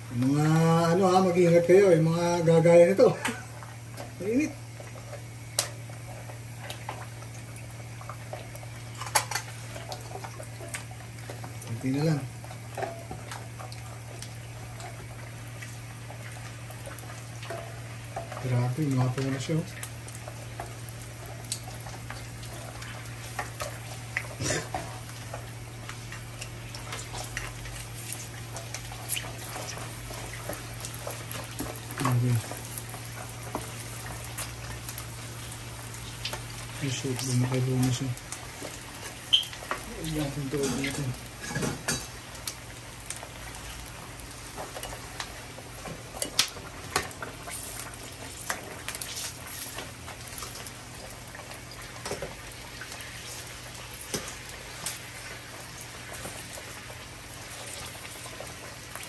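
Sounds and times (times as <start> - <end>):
crackling pops of frying pork skin: 0.0 - 59.0
hot oil sizzling: 0.0 - 59.0.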